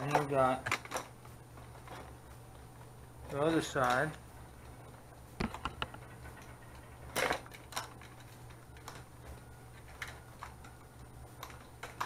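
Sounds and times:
steady low hum: 0.0s - 12.0s
wires and plastic clicking: 5.4s - 12.0s.

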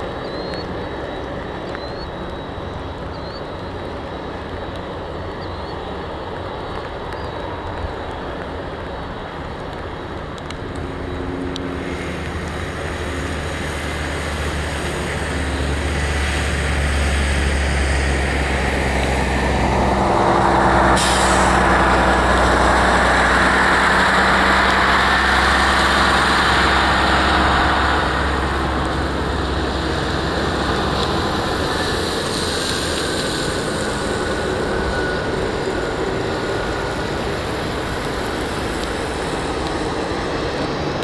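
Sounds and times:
jet engines rumbling: 0.0s - 41.0s
short sharp hiss: 20.9s - 21.8s.

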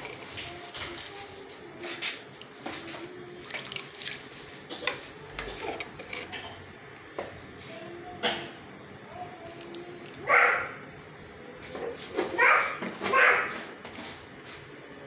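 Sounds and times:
metal ladle scraping a pot: 4.6s - 6.7s.

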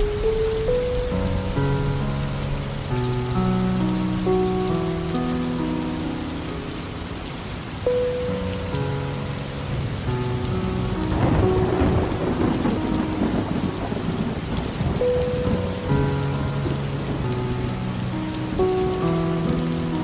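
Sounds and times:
steady rain falling: 0.0s - 20.0s
thunder rumbling: 9.6s - 20.0s.

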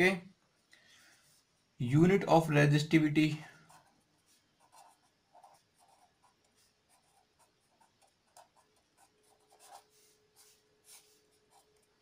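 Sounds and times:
pen scratching on paper: 3.6s - 12.0s.

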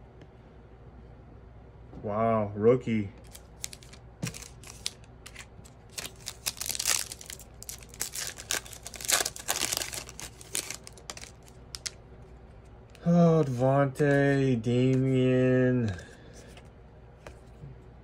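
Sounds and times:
foil wrappers crinkling: 3.2s - 12.0s.

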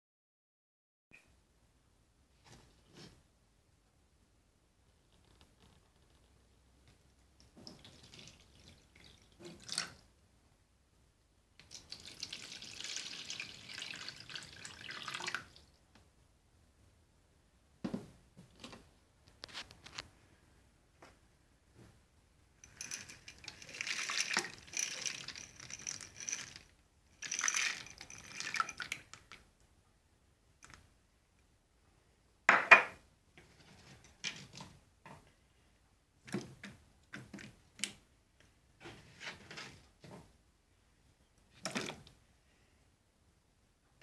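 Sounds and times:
carrot pieces dropping into water: 22.7s - 29.4s, 41.6s - 42.1s
frozen peas splashing into water: 22.8s - 26.6s, 27.2s - 29.3s.

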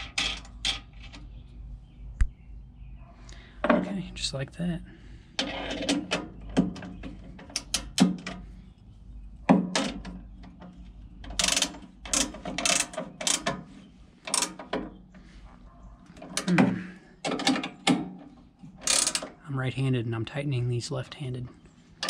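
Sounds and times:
wrench clicking on metal nuts: 11.3s - 13.6s, 14.3s - 14.7s, 18.8s - 19.3s.

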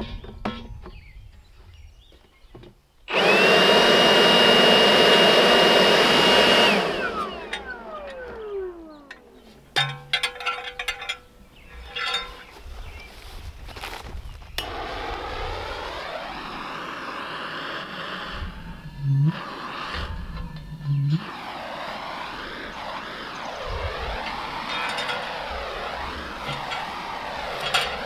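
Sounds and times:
power tool motor whining: 3.1s - 9.5s, 14.6s - 28.0s
metal clinks and knocks: 9.8s - 12.6s.

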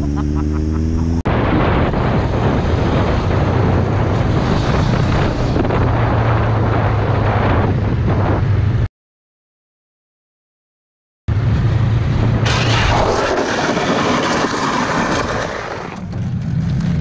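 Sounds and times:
low motorcycle engine note: 0.0s - 2.2s
wind noise on microphone: 1.3s - 8.9s.

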